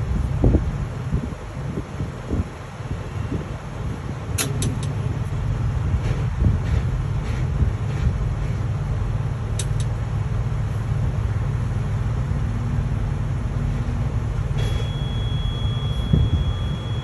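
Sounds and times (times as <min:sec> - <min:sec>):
diesel engine running: 0:00.0 - 0:17.0
steady high beep: 0:14.6 - 0:17.0.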